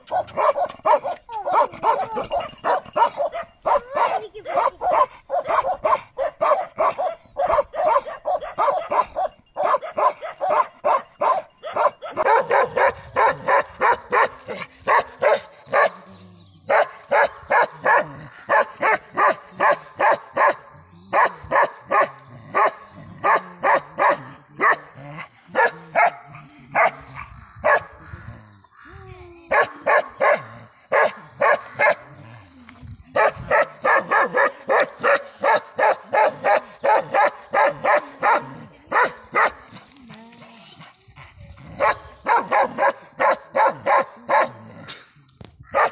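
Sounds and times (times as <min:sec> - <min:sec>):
dog barking: 0:00.1 - 0:16.0, 0:16.7 - 0:24.9, 0:25.6 - 0:26.2, 0:26.8 - 0:27.0, 0:27.6 - 0:27.9, 0:29.5 - 0:32.0, 0:33.2 - 0:39.6, 0:41.8 - 0:44.6.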